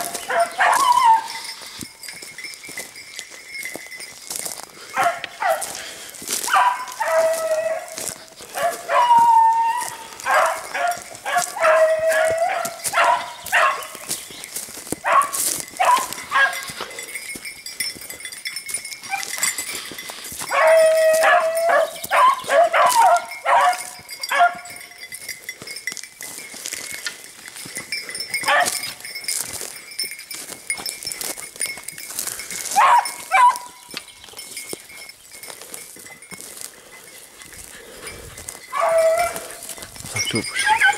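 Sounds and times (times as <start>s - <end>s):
dogs barking: 0.0s - 1.7s, 4.9s - 14.2s, 15.0s - 17.0s, 19.0s - 19.6s, 20.4s - 24.9s, 28.1s - 29.0s, 32.6s - 34.0s, 37.7s - 40.9s
dogs baying: 0.0s - 2.0s, 4.8s - 26.0s, 26.6s - 29.8s, 32.2s - 40.9s.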